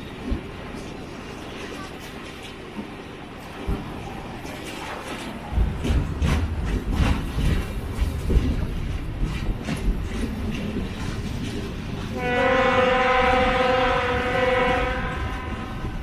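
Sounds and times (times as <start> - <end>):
steam locomotive rumbling: 0.0 - 16.0
steam whistle: 12.2 - 15.8.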